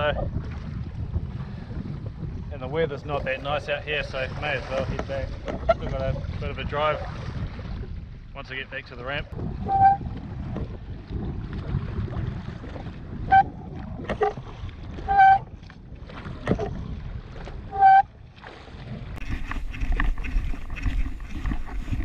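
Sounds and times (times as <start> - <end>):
choppy sea washing: 0.0 - 22.0
wind: 0.0 - 22.0
short electronic beep: 9.7 - 10.0.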